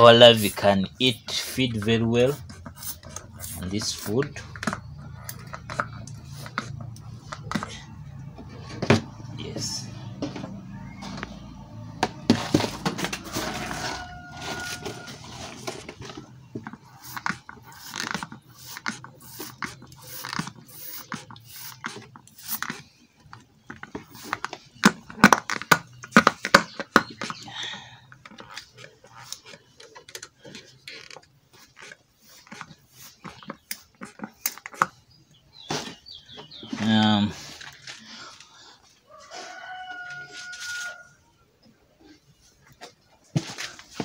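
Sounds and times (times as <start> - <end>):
hands rustling dry feed: 13.2 - 15.9.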